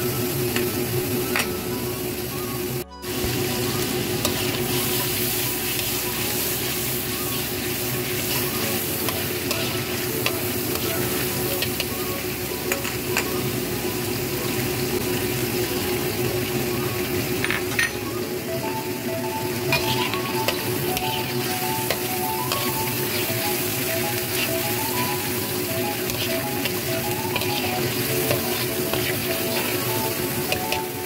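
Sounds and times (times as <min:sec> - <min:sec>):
spice paste sizzling in oil: 0:03.1 - 0:17.5, 0:18.5 - 0:31.0
spatula scraping a wok: 0:19.7 - 0:24.9, 0:25.9 - 0:30.6.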